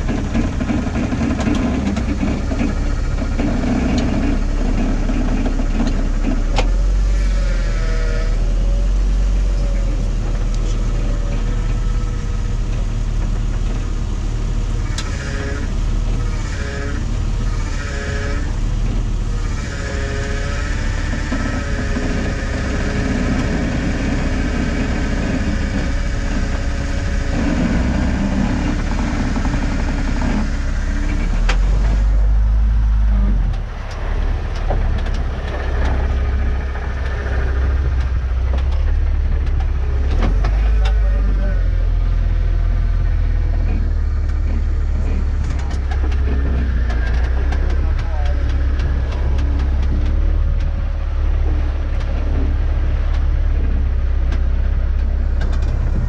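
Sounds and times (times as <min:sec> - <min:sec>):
vehicle engine rumbling at low revs: 0:00.0 - 0:56.0.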